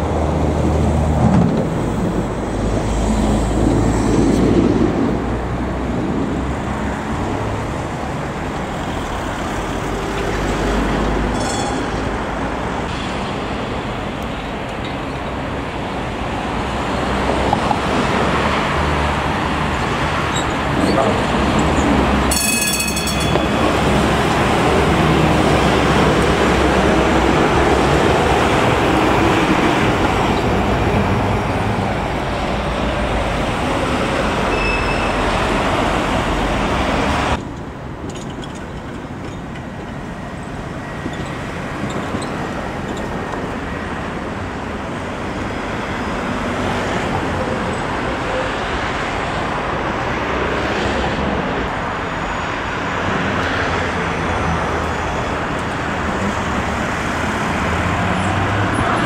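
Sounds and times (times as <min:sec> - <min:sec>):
street traffic noise: 0:00.0 - 0:59.0
tram rolling rumble: 0:00.0 - 0:59.0
high shrill tone: 0:11.3 - 0:12.3, 0:22.3 - 0:24.3.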